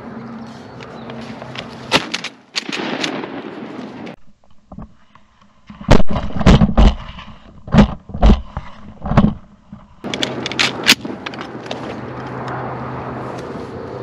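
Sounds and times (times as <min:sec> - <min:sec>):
shotgun shots: 0:01.9 - 0:04.0.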